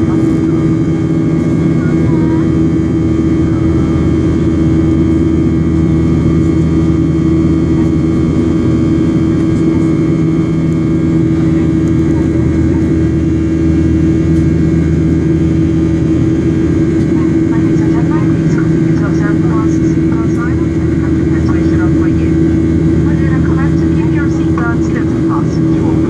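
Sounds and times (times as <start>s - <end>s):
jet engines droning in cabin: 0.0s - 26.0s.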